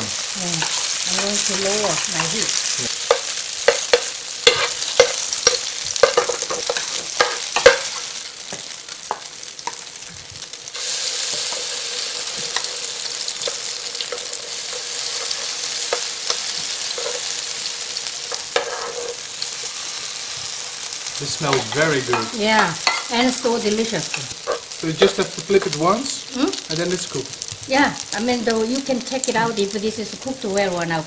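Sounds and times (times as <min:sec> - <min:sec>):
pancakes sizzling in oil: 0:00.0 - 0:31.0
spoon scraping a pan: 0:00.6 - 0:09.8, 0:10.8 - 0:17.5, 0:18.3 - 0:20.6, 0:21.5 - 0:23.2, 0:24.0 - 0:25.2.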